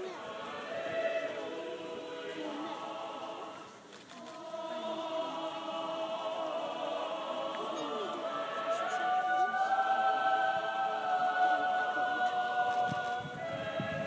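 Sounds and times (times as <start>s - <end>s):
choir singing in harmony: 0.0s - 14.0s.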